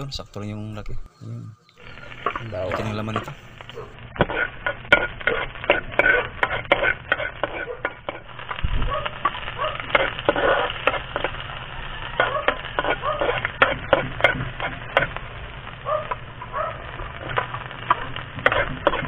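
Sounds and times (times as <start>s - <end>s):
wood fire crackling: 0.0s - 19.0s
garlic sizzling in oil: 1.8s - 19.0s
metal spatula stirring: 4.2s - 8.3s, 9.2s - 11.4s, 12.2s - 15.2s, 18.4s - 19.0s.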